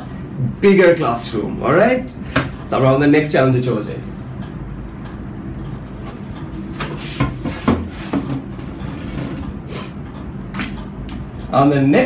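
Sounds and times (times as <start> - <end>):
steady low hum: 0.0 - 12.0
board knocking and scraping: 6.0 - 9.5.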